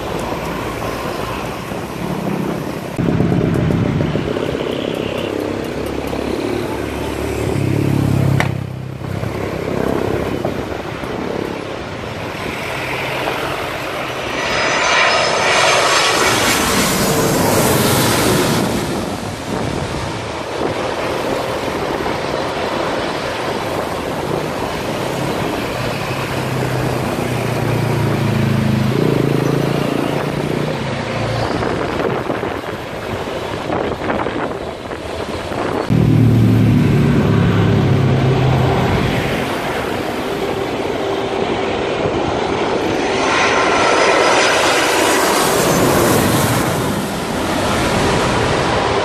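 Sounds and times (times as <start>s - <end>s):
low engine hum: 0.0s - 12.5s, 35.6s - 44.5s
jet airliner passing overhead: 0.0s - 49.0s
road traffic noise: 0.0s - 49.0s
vehicle engine passing: 5.5s - 10.6s, 35.9s - 41.6s.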